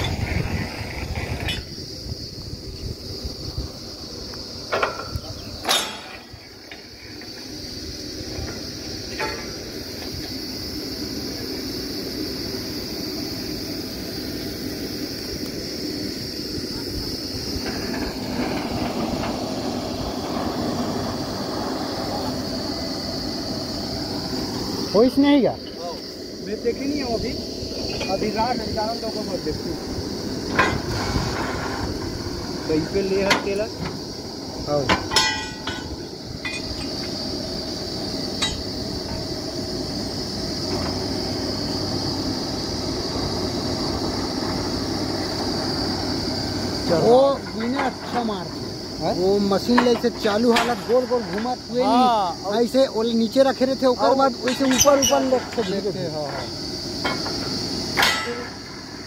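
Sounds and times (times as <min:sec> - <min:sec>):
drilling rig high whine: 0:00.0 - 0:59.0
high hiss: 0:00.0 - 0:59.0
metallic clinks of drill pipe: 0:34.8 - 0:37.2, 0:38.3 - 0:39.3, 0:54.4 - 0:58.8.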